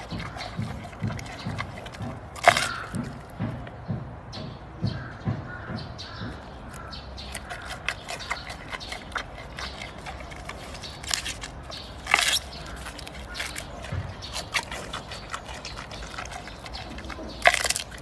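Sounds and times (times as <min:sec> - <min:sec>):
panda crunching bamboo: 0:00.0 - 0:03.9, 0:06.2 - 0:18.0
soft low thuds: 0:00.1 - 0:07.0.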